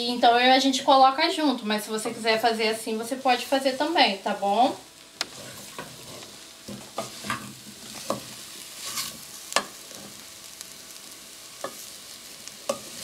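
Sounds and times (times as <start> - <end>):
food sizzling in a pan: 0.0 - 13.0
spoon scraping a pan: 5.2 - 10.3, 11.6 - 11.9, 12.6 - 13.0.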